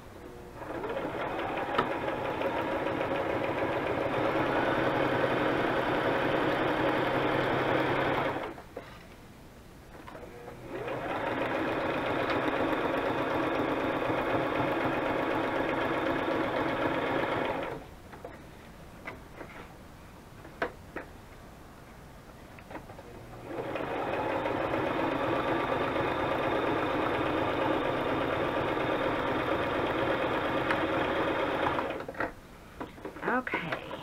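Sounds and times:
electric sewing machine stitching: 0:00.4 - 0:08.6, 0:10.2 - 0:17.8, 0:23.1 - 0:32.1.

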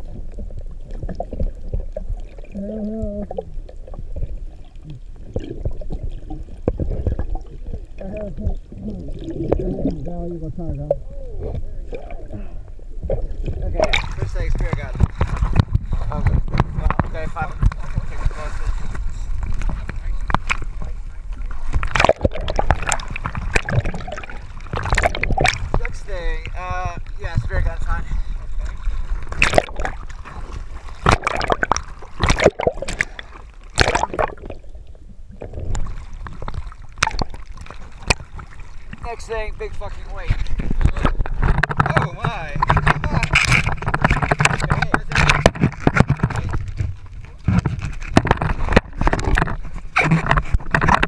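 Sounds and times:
muffled underwater rumble: 0:00.0 - 0:51.0
water slapping boat hull: 0:00.0 - 0:51.0
water splashes: 0:00.0 - 0:51.0
clicks and knocks: 0:40.7 - 0:51.0.

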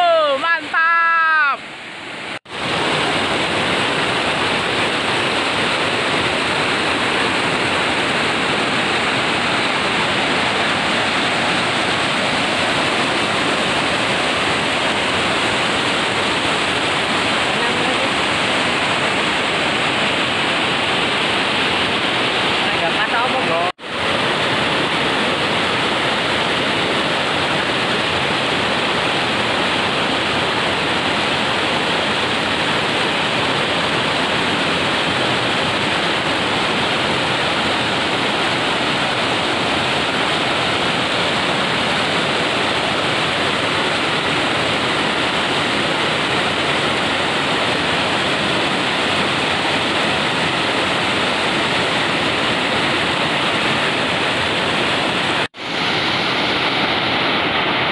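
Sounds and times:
waterfall rushing: 0:00.0 - 0:57.9.

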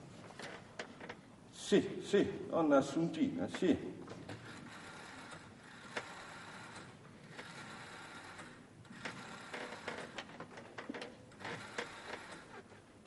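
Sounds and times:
rotary telephone dial clicking: 0:04.3 - 0:12.7.

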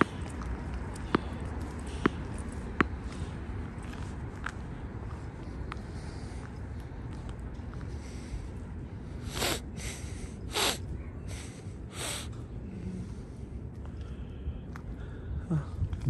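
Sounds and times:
steady low rumble: 0:00.0 - 0:16.0
breathy sniffs: 0:09.1 - 0:13.2.

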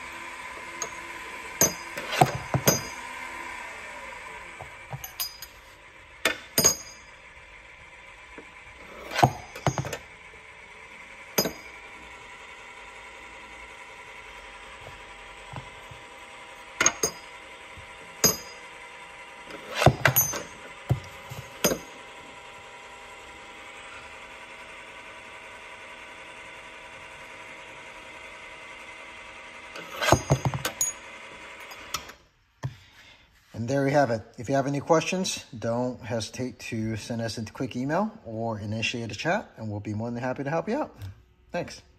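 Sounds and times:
machine hum: 0:00.0 - 0:32.2
brass cases clinking: 0:01.6 - 0:03.1, 0:04.9 - 0:05.7, 0:06.3 - 0:07.2, 0:09.0 - 0:10.0, 0:11.4 - 0:11.8, 0:16.8 - 0:17.4, 0:18.2 - 0:18.7, 0:19.6 - 0:22.0.

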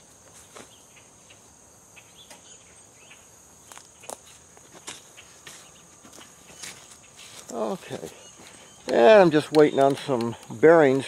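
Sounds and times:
high-pitched insect trill: 0:00.0 - 0:11.0
footsteps on leaves: 0:03.6 - 0:08.8.

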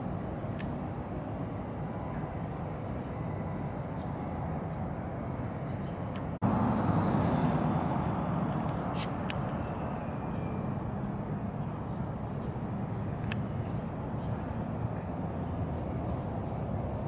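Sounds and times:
outdoor background rumble: 0:00.0 - 0:17.0.

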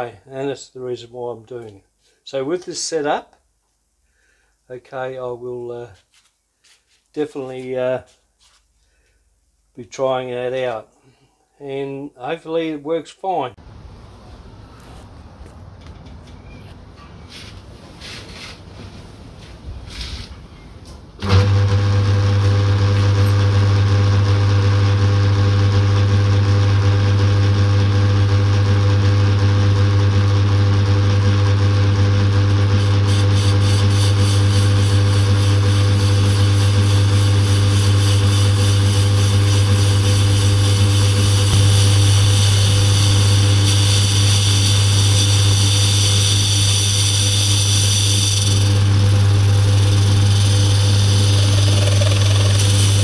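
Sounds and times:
lathe motor hum: 0:31.2 - 0:53.0
high whine with fast flutter: 0:38.9 - 0:48.8, 0:50.3 - 0:53.0.

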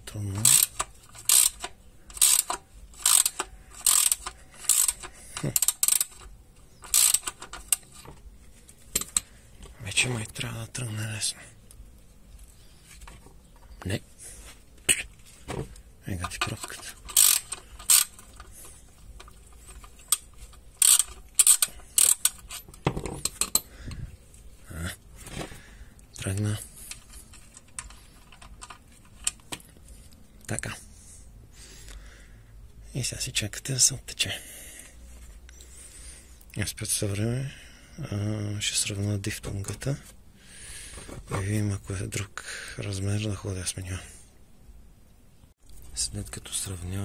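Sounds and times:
ratchet wrench clicking: 0:00.4 - 0:08.0, 0:16.3 - 0:18.5, 0:19.2 - 0:23.7.

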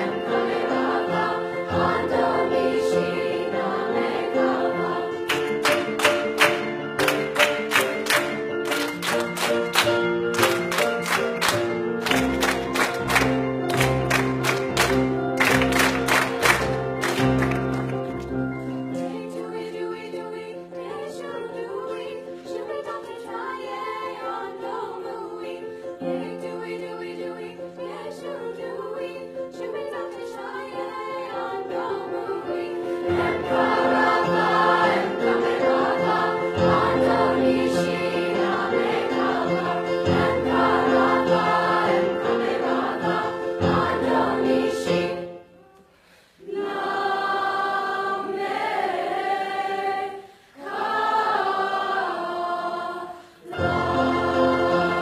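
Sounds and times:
choir singing a folk song: 0:00.0 - 0:07.6, 0:18.6 - 0:55.0.

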